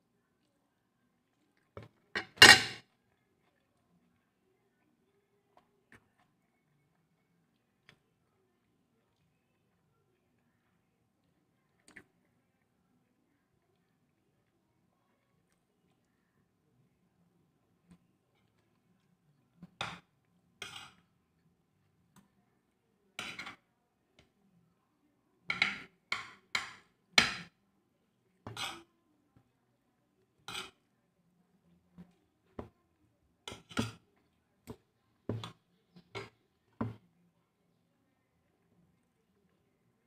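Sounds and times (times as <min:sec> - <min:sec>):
eating by hand clicks and smacks: 0:11.2 - 0:12.7.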